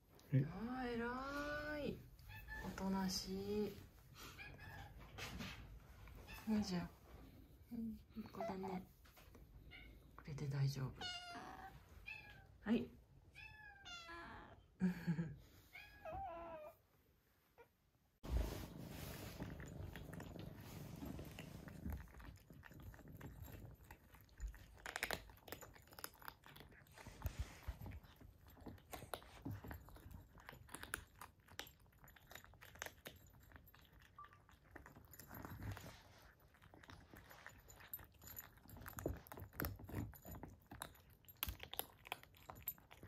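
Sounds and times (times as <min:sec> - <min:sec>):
cats chewing food: 0:18.3 - 0:43.0.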